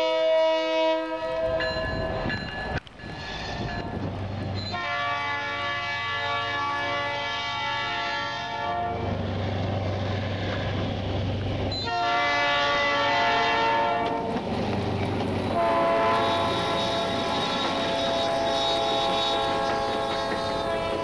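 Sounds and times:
locomotive horn blasts: 0:00.0 - 0:01.6, 0:04.7 - 0:09.1, 0:11.8 - 0:14.3, 0:15.5 - 0:21.0.

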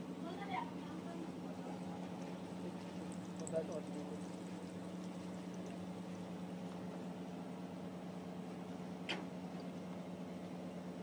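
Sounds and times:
low mechanical hum: 0:00.0 - 0:11.0
food deep-frying in hot oil: 0:00.2 - 0:08.2.

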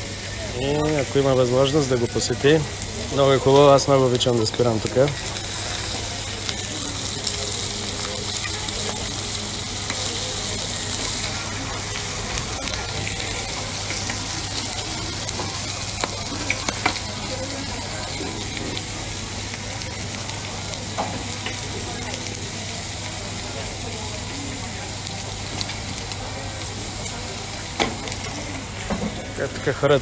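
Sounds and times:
meat sizzling on a griddle: 0:00.0 - 0:30.0.

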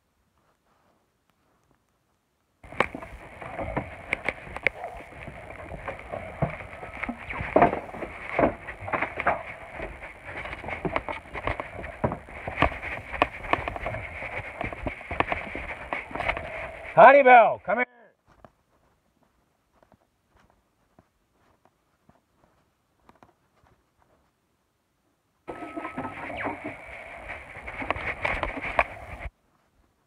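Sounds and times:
footsteps: 0:00.3 - 0:24.4, 0:25.5 - 0:30.0
phone knocking and rustling: 0:02.6 - 0:16.5, 0:25.5 - 0:29.3
steady high-pitched buzz: 0:25.5 - 0:29.3.

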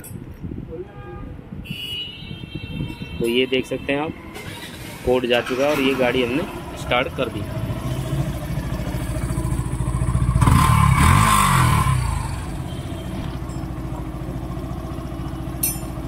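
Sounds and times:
motorcycle engine idling and revving: 0:04.4 - 0:16.0.

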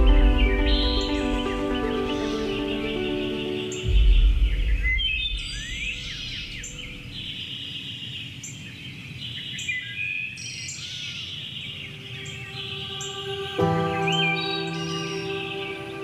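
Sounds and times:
soft music: 0:00.0 - 0:07.2, 0:11.7 - 0:16.0
songbird singing: 0:00.0 - 0:16.0.

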